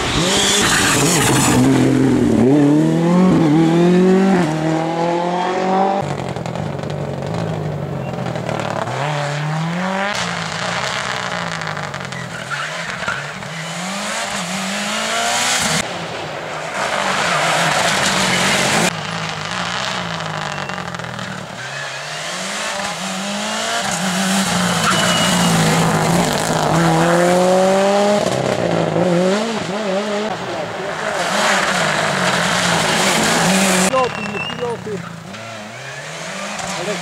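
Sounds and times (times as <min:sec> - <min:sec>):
rally car engine revving: 0:00.0 - 0:15.9, 0:16.6 - 0:37.0
tyre squeal: 0:11.9 - 0:13.7, 0:20.3 - 0:23.0, 0:23.8 - 0:25.8, 0:33.4 - 0:36.9.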